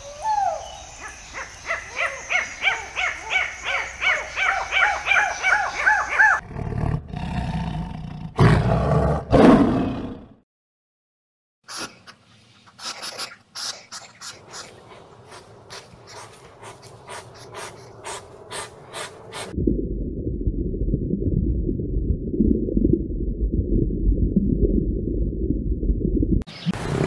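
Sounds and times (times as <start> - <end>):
lemurs calling: 0.0 - 6.4, 12.7 - 19.5
porcupine snuffling: 11.7 - 19.6.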